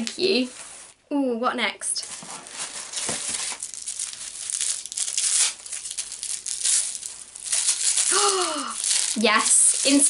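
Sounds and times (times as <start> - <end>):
wrapping paper tearing and crumpling: 2.0 - 10.0.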